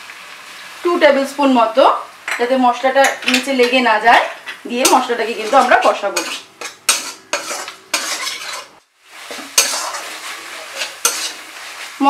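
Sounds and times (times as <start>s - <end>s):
spices sizzling in oil: 0.0s - 12.0s
metal spatula scraping a pan: 4.7s - 12.0s.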